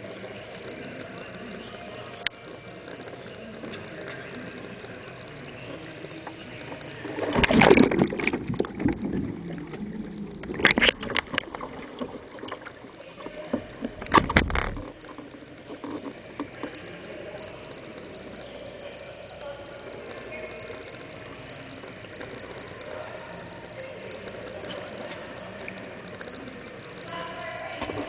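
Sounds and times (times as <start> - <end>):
sharp water noises: 0.0 - 28.0
kayak splashing in water: 6.8 - 16.9.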